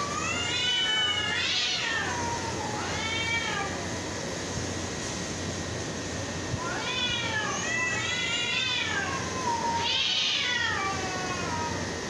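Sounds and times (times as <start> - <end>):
cats yowling: 0.0 - 4.0, 6.6 - 12.0.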